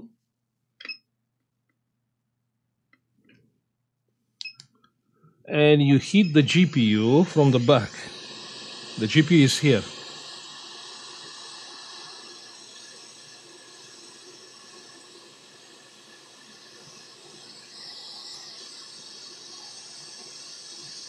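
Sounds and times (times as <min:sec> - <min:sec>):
hot air station airflow hiss: 0:05.5 - 0:21.0.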